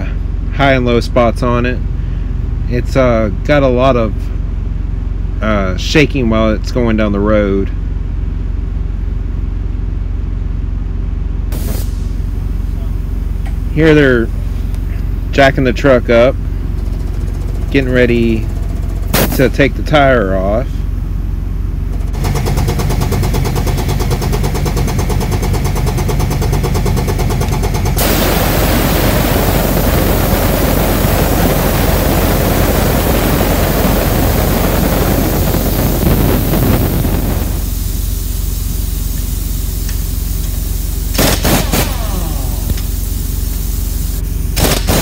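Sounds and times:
pneumatic impact wrench hammering: 0:11.5 - 0:12.1, 0:18.5 - 0:19.5, 0:21.9 - 0:29.1, 0:35.3 - 0:45.0.

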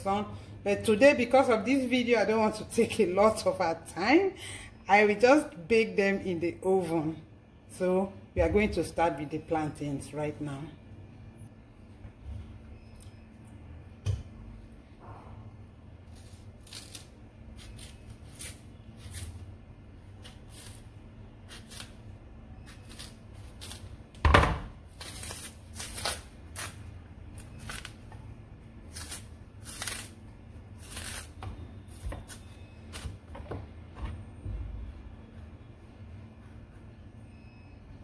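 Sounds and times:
peel tearing: 0:16.1 - 0:19.5, 0:20.2 - 0:22.0, 0:22.6 - 0:23.9, 0:24.9 - 0:28.1, 0:28.8 - 0:33.0
knife scraping plantain skin: 0:16.1 - 0:24.0, 0:24.9 - 0:28.1, 0:28.8 - 0:33.2.

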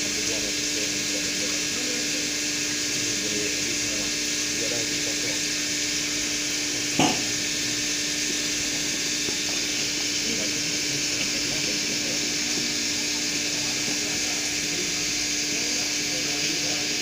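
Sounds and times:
coolant spraying hiss: 0:00.0 - 0:17.0
milling machine hum: 0:00.0 - 0:17.0
brief knock: 0:07.0 - 0:07.3.

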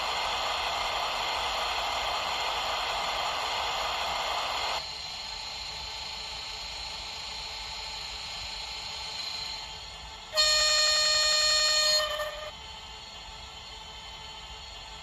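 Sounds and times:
model locomotive horn blast: 0:10.3 - 0:12.6.

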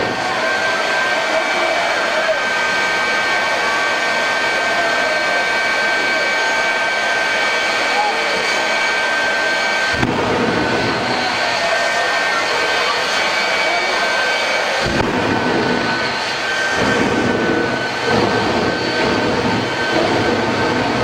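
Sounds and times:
turbojet engine roaring and whining: 0:00.0 - 0:21.0
deep rumble: 0:09.9 - 0:12.2, 0:14.8 - 0:21.0.

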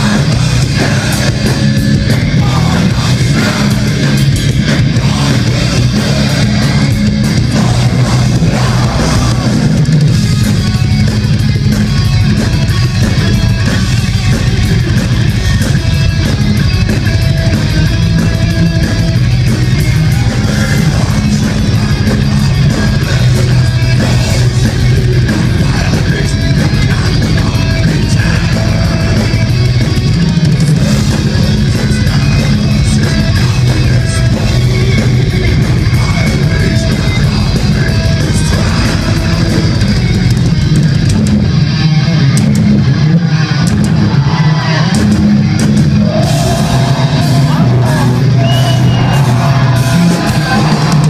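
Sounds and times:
harsh vocals: 0:00.0 - 0:10.0, 0:19.8 - 0:29.6, 0:30.7 - 0:40.1, 0:45.9 - 0:51.0
bass guitar: 0:00.0 - 0:51.0
distorted electric guitars: 0:00.0 - 0:51.0
drums: 0:00.0 - 0:51.0.

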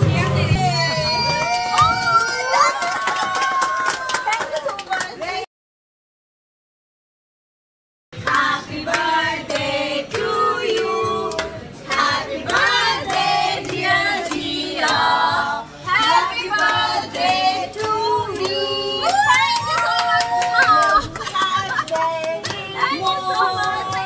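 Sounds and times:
women singing together: 0:08.2 - 0:24.0
hands clapping in time: 0:08.3 - 0:15.0, 0:16.5 - 0:22.6.

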